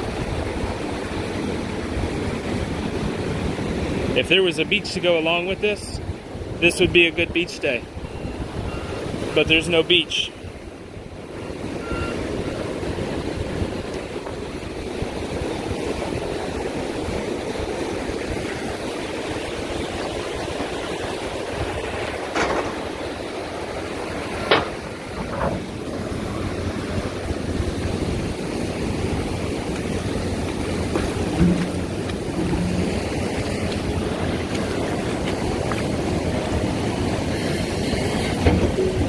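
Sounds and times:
ocean waves breaking on sand: 0.0 - 39.0
sharp knocks: 24.4 - 25.7, 30.9 - 33.0.

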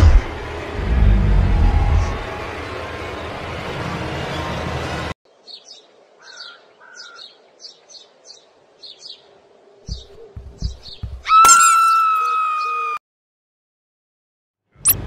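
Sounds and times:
loud low drone: 0.0 - 4.0
birds chirping: 5.3 - 13.0
low thumps: 9.9 - 11.3.

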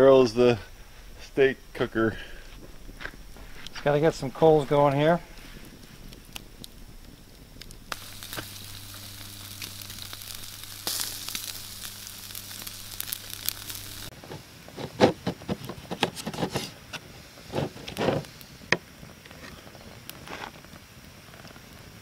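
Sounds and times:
steaks sizzling on grill: 0.0 - 14.6
crackling campfire: 0.0 - 22.0.

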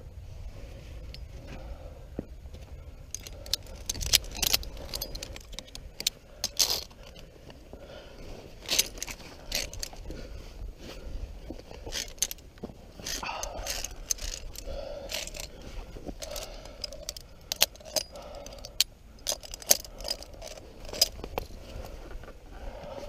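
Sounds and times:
carabiners clinking on steel cable: 1.0 - 1.3, 2.9 - 7.6, 8.4 - 10.2, 11.5 - 21.8.

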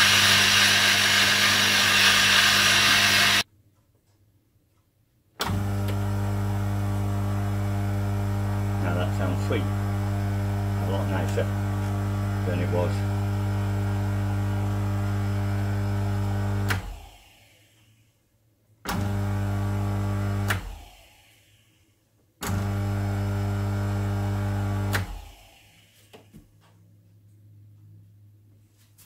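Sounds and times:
electric motor humming: 0.0 - 3.4, 5.5 - 17.1.

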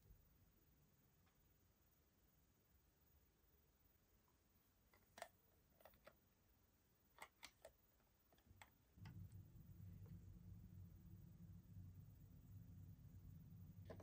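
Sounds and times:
low steady rumble: 8.5 - 14.0.

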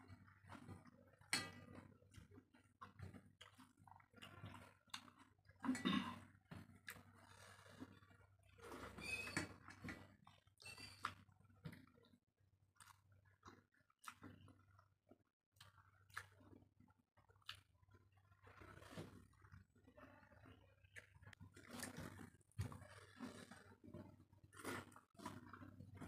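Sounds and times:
chewing and lip smacks: 0.2 - 5.6, 12.8 - 14.9, 15.6 - 16.6, 17.2 - 19.6, 20.4 - 26.0.

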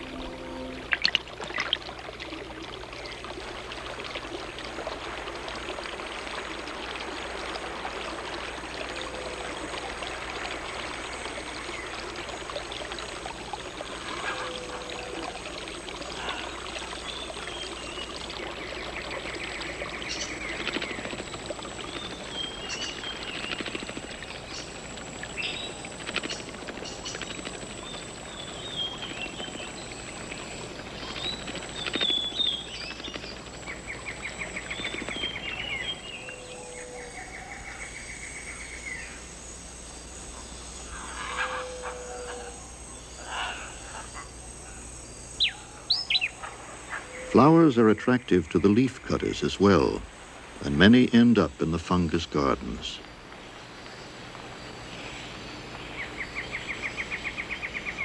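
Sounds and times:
stream running: 0.0 - 58.0
birds chirping and whistling: 45.4 - 46.4.

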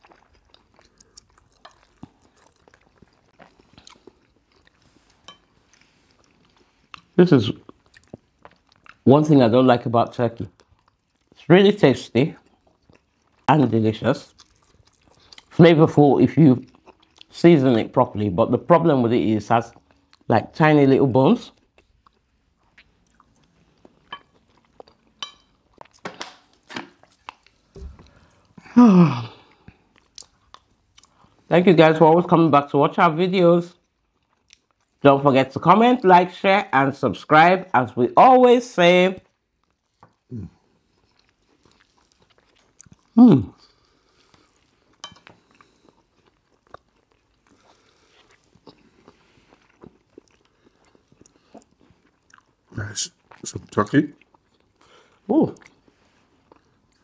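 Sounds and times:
people chewing: 0.0 - 9.0, 12.4 - 13.5, 14.2 - 15.6, 16.6 - 17.4, 21.5 - 31.5, 33.8 - 35.0, 39.2 - 57.0.

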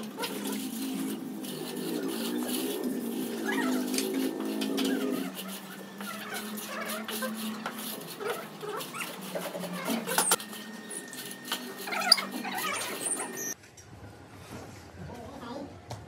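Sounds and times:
straightedge scraping wet screed: 0.0 - 13.6
high animal calls: 1.7 - 10.4.

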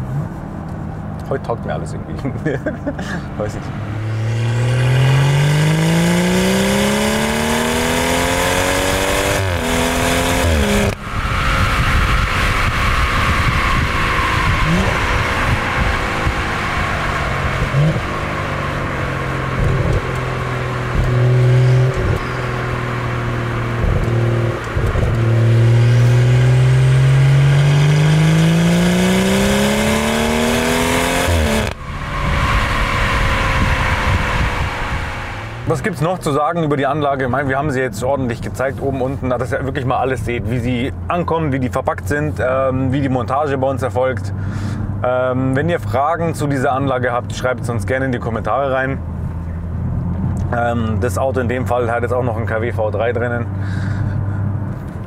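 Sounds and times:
car exhaust accelerating: 2.0 - 43.1.

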